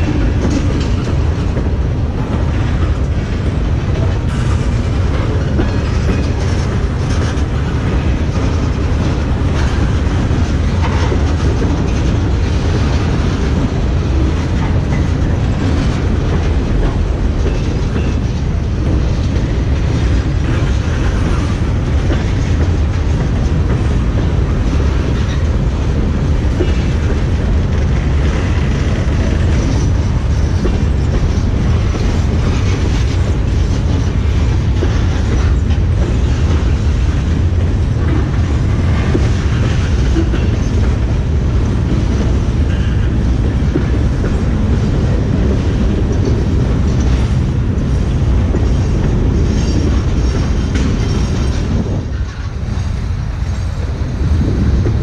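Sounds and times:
steel wheels rumbling on rail: 0.0s - 55.0s
wheels clacking over rail joints: 0.0s - 55.0s.

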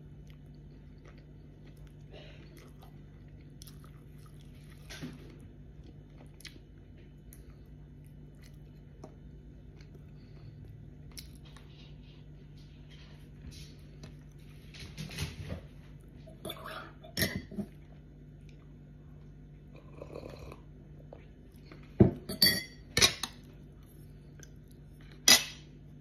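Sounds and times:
tableware clinking and knocking: 22.0s - 23.3s.

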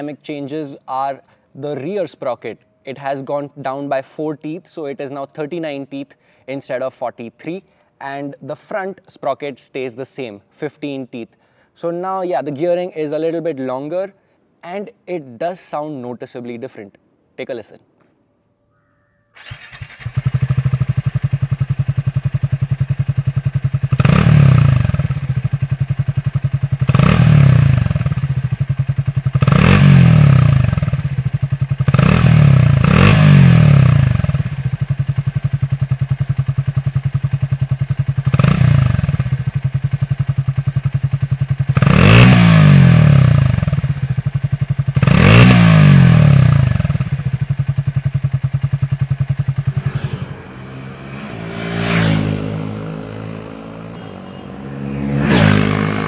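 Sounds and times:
motorcycle engine idling and revving: 19.4s - 56.0s.

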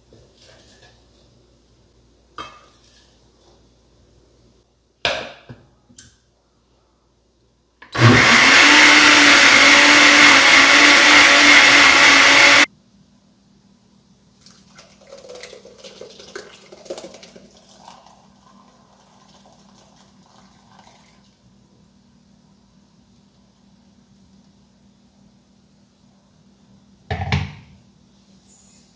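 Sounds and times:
blender running: 8.0s - 12.7s.

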